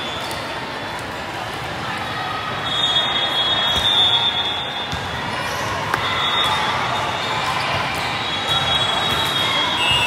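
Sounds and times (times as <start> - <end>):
crowd chatter: 0.0 - 10.0
volleyballs hit and bouncing: 4.8 - 9.8.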